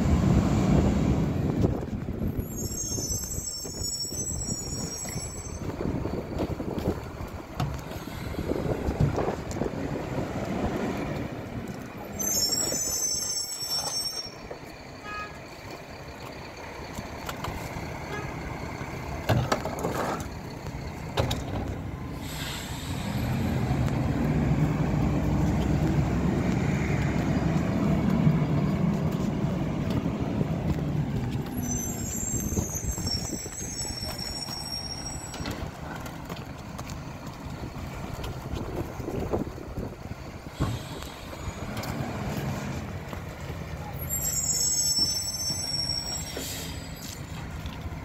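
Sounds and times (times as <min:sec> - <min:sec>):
garbage truck diesel engine: 0:00.0 - 0:48.0
high squeal: 0:02.3 - 0:06.6, 0:12.0 - 0:15.4, 0:31.4 - 0:35.7, 0:43.8 - 0:47.4.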